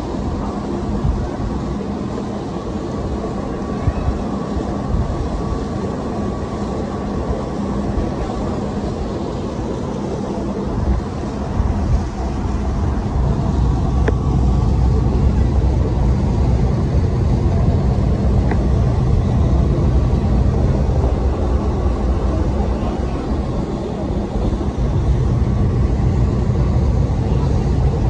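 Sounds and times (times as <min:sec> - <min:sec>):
ferry engines rumbling: 0:00.0 - 0:28.0
wake churning alongside hull: 0:00.0 - 0:28.0
wind on microphone: 0:00.0 - 0:28.0.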